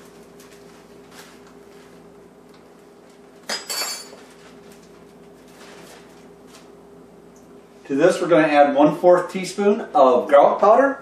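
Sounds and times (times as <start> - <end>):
faint steady hum: 0.0 - 11.0
kitchenware clinking: 3.4 - 4.4.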